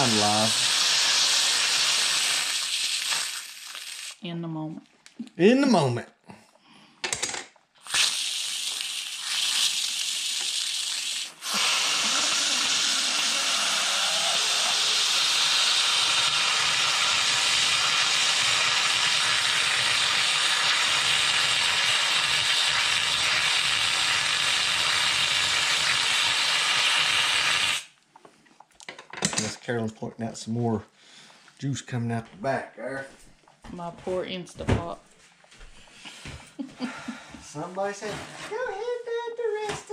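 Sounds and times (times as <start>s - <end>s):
pressure cooker venting steam: 0.0s - 4.2s, 7.9s - 27.9s.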